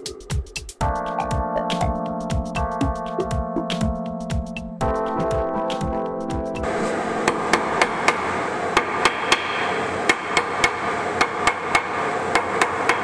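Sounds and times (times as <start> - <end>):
electronic music: 0.0 - 8.7.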